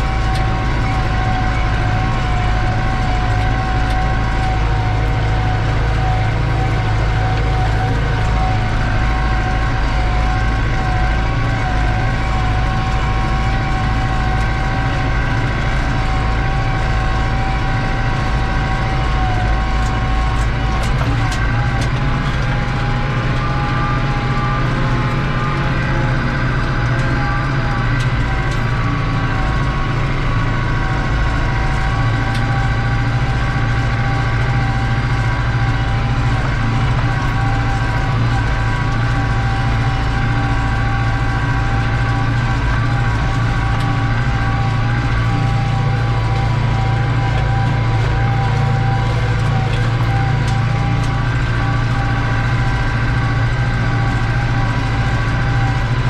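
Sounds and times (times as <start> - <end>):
tractor diesel engine running: 0.0 - 56.0
turbo whine: 0.0 - 56.0.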